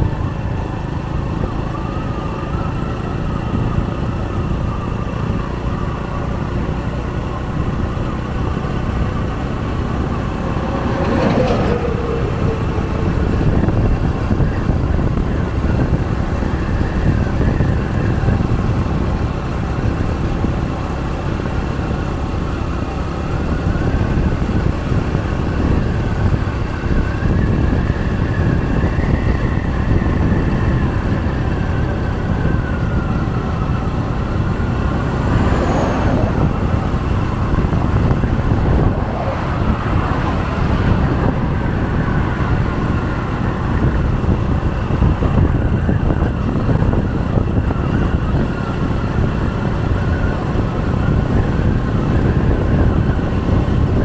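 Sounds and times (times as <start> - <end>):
engine whine: 0.0 - 54.0
vehicle wind and road noise: 0.0 - 54.0
vehicle passing by: 8.1 - 15.4, 32.8 - 45.1.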